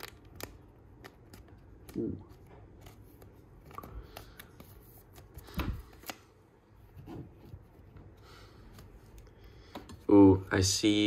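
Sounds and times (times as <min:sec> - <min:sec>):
cards rubbing and flicking: 0:00.0 - 0:06.4.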